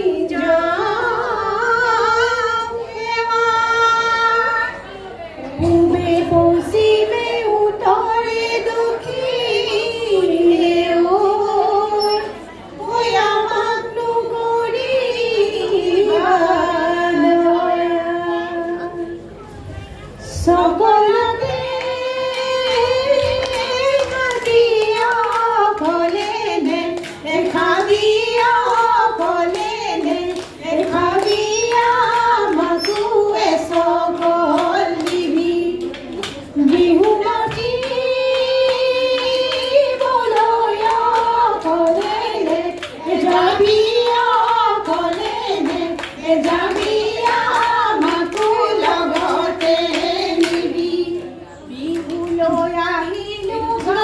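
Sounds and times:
woman singing: 0.0s - 4.8s, 5.5s - 19.2s, 20.2s - 54.0s
rhythmic hand clapping: 21.5s - 51.2s, 51.8s - 54.0s.

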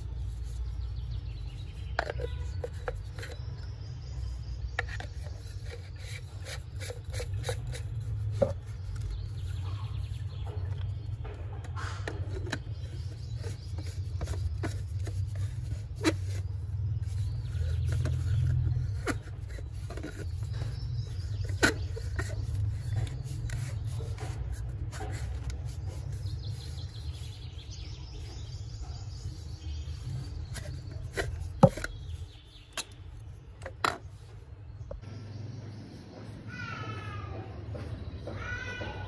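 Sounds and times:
plastic blender parts clicking: 1.6s - 3.7s, 4.8s - 9.1s, 12.0s - 16.4s, 17.0s - 26.7s, 30.5s - 34.2s.

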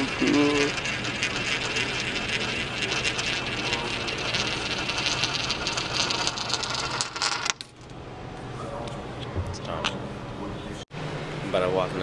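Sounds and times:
coin rolling in spiral funnel: 0.0s - 7.8s.

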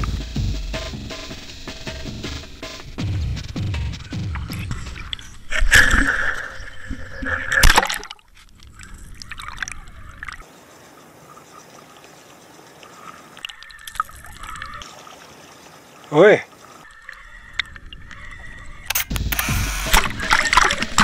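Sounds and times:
water sloshing and gurgling: 3.7s - 18.9s, 19.7s - 21.0s.

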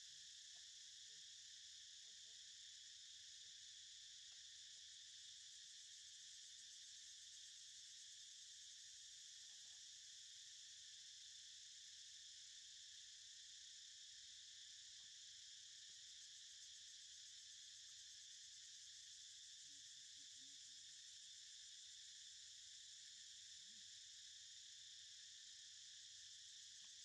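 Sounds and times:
high-pitched insect chorus: 12.2s - 27.0s.

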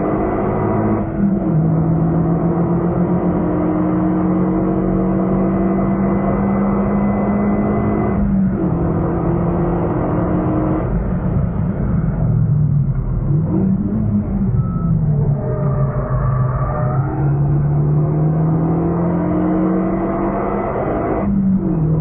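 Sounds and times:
car engine at full throttle: 0.0s - 22.0s.

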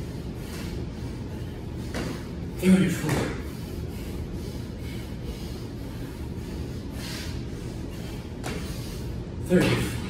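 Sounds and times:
ventilation hum: 0.0s - 10.0s
rush of breath: 3.4s - 9.2s.

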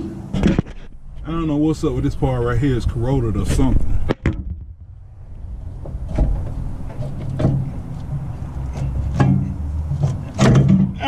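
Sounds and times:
low steady rumble: 0.0s - 10.3s
metal knocks of brake caliper: 5.8s - 11.0s.

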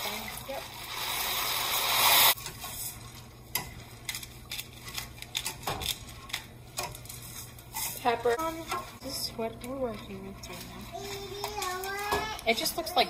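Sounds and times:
spatula scraping in pot: 2.0s - 12.2s.

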